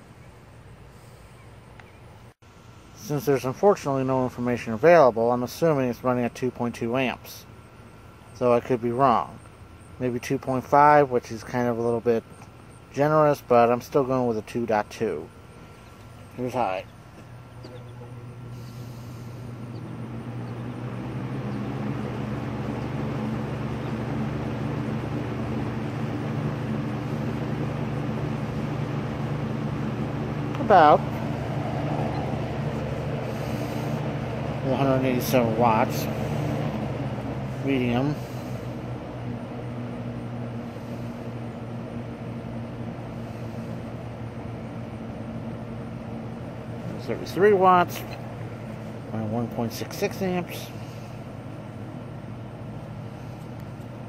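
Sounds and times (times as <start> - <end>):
electric fan motor humming: 0.0 - 54.0
rush of air from fan blade: 17.1 - 54.0.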